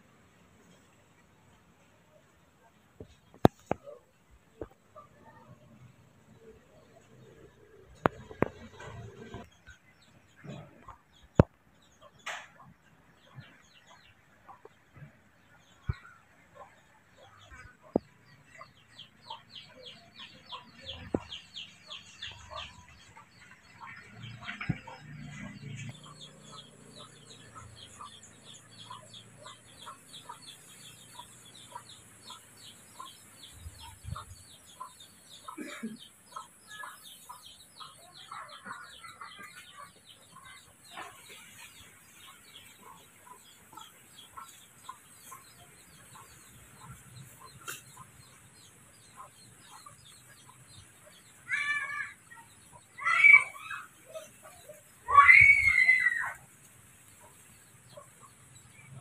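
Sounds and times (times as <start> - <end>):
chickens clucking: 0.6 - 59.0
loud high-pitched cries: 51.4 - 54.2, 55.0 - 56.4.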